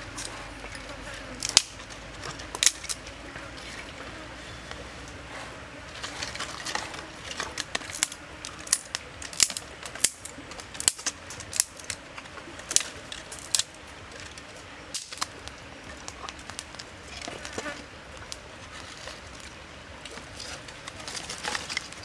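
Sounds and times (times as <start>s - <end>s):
sticks rustling: 0.0s - 22.0s
dry twigs snapping: 1.4s - 3.1s, 6.1s - 22.0s.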